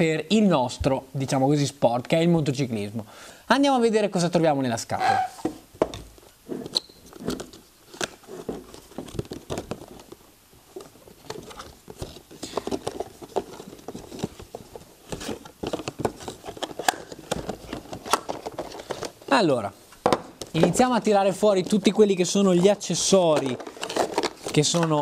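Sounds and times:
cardboard and plastic packaging rustling: 0:05.1 - 0:25.0.

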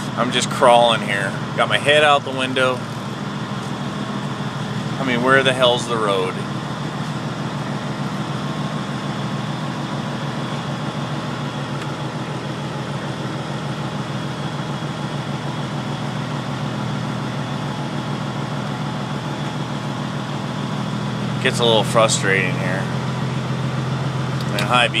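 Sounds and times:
diesel truck engine running: 0:00.0 - 0:25.0.

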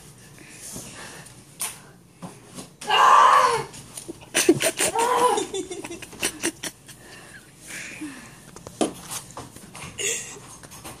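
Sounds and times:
person crying out: 0:02.9 - 0:03.7, 0:04.6 - 0:05.8.

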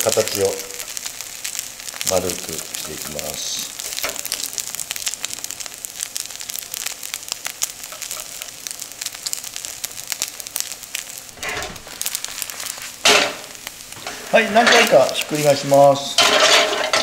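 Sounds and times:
food sizzling in oil: 0:00.0 - 0:17.0
spatula pushing in pan: 0:13.0 - 0:15.1, 0:16.1 - 0:17.0.

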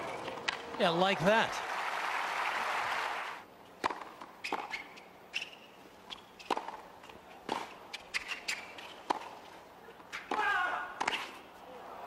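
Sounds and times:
applause: 0:00.9 - 0:03.4
tennis ball bouncing on court: 0:03.8 - 0:04.8, 0:06.1 - 0:06.8, 0:07.4 - 0:08.3, 0:09.1 - 0:09.4
sneakers squeaking: 0:03.8 - 0:09.5.

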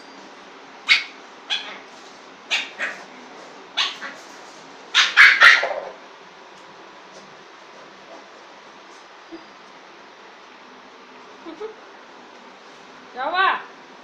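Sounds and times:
puppy yapping: 0:00.9 - 0:01.9, 0:02.5 - 0:03.1, 0:03.8 - 0:04.2, 0:04.9 - 0:06.0.

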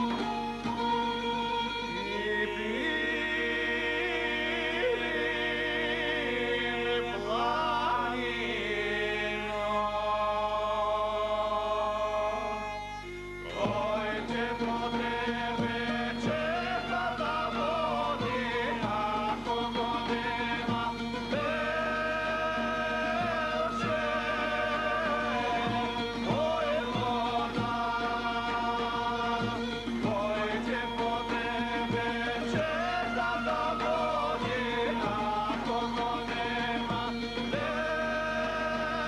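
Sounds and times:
bagpipe drone: 0:00.0 - 0:39.0
folk wind instruments: 0:00.0 - 0:39.0
men singing together: 0:02.0 - 0:12.6, 0:13.5 - 0:39.0
drum beats: 0:13.5 - 0:39.0.

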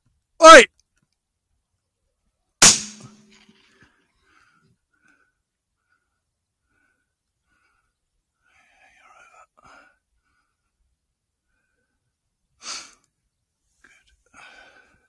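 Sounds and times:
faint whispering: 0:08.4 - 0:10.0, 0:13.8 - 0:15.0
sharp burst of breath: 0:12.6 - 0:13.0
breathing close to microphone: 0:14.3 - 0:15.0.

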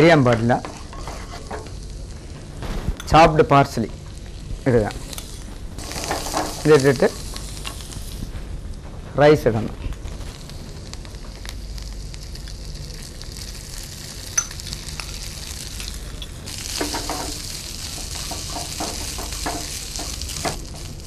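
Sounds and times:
rice sizzling in butter: 0:00.6 - 0:02.3, 0:03.2 - 0:08.5, 0:09.8 - 0:21.0.

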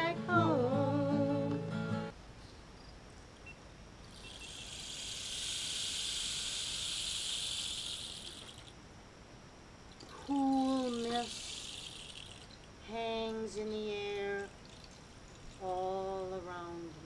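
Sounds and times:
person singing folk song: 0:00.0 - 0:02.1, 0:10.3 - 0:11.7, 0:12.8 - 0:14.6, 0:15.6 - 0:17.0
strummed acoustic guitars: 0:00.0 - 0:02.1
rain hiss: 0:03.9 - 0:16.5.

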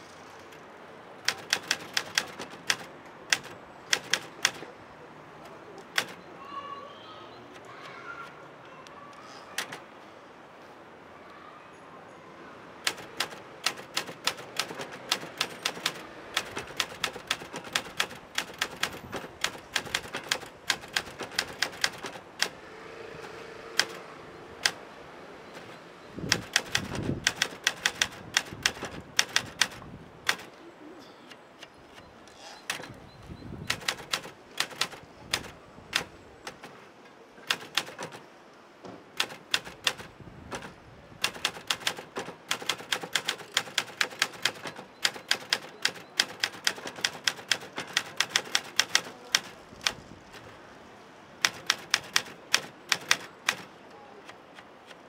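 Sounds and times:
typewriter key strikes: 0:01.2 - 0:04.7, 0:05.9 - 0:06.2, 0:12.8 - 0:22.6, 0:23.8 - 0:24.0, 0:25.6 - 0:30.5, 0:33.7 - 0:36.7, 0:37.5 - 0:38.2, 0:39.2 - 0:50.0, 0:51.4 - 0:53.7.

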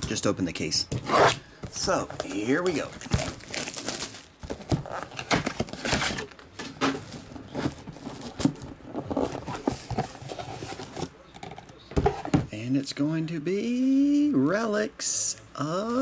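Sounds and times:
plastic shrink-wrap crinkling: 0:02.2 - 0:08.6.

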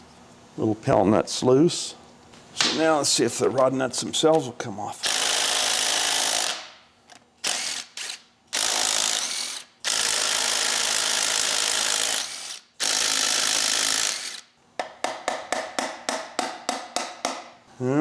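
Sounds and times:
impact driver running: 0:07.4 - 0:14.4.

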